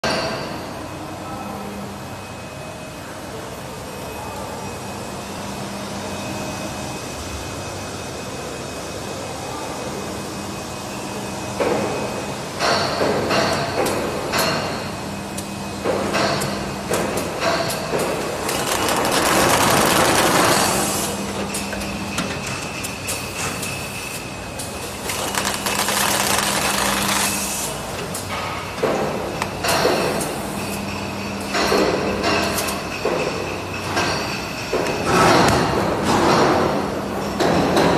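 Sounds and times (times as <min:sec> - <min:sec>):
machine mechanical hum: 0:00.0 - 0:37.9
packing machine humming: 0:16.5 - 0:31.4
rough mechanical noise: 0:18.2 - 0:21.4, 0:24.9 - 0:27.8.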